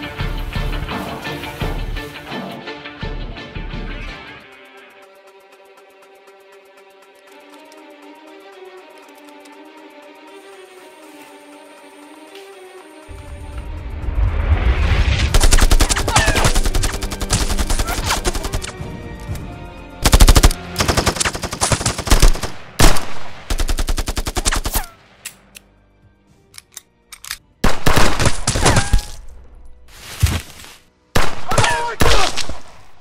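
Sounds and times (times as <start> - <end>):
automatic gunfire bursts: 15.4 - 18.7, 20.0 - 24.8
single gunshots: 27.6 - 29.2, 31.2 - 32.9.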